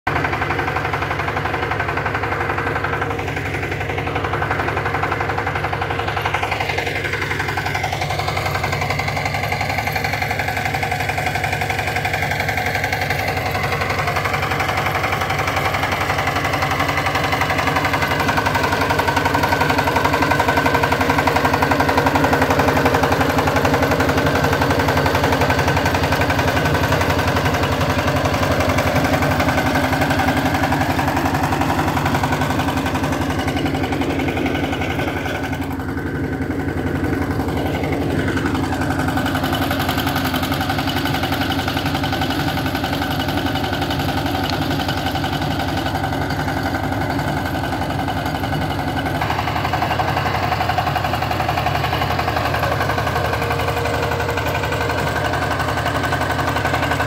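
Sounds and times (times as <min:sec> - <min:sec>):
power tiller engine chugging: 0:00.0 - 0:57.0.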